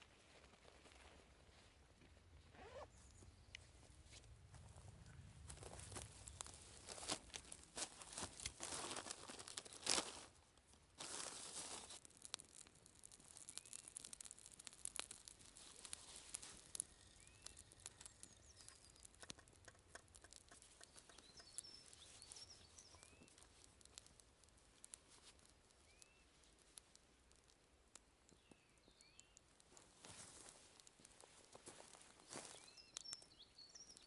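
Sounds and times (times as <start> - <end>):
small wood fire crackling: 0.0 - 34.0
plastic rustling: 6.1 - 10.4, 11.0 - 18.6.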